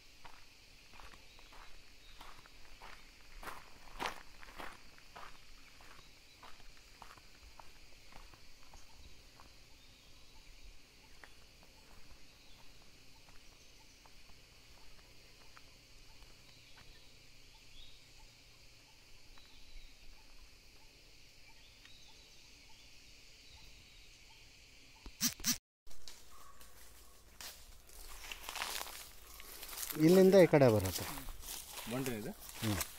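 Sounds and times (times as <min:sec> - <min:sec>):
insects droning: 0:00.0 - 0:32.9
faint bird chirps: 0:01.2 - 0:02.4, 0:08.1 - 0:25.3.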